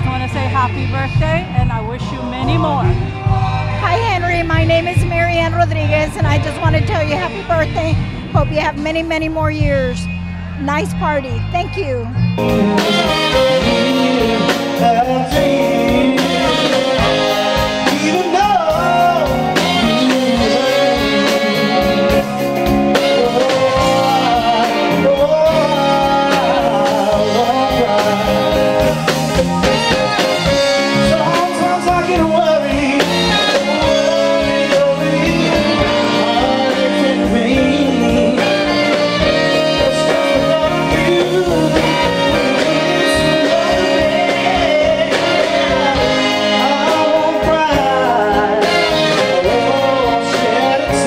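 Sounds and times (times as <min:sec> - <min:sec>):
electric guitar: 0:00.0 - 0:51.0
horn section: 0:00.0 - 0:51.0
live band playing: 0:00.0 - 0:51.0
man singing: 0:12.4 - 0:51.0.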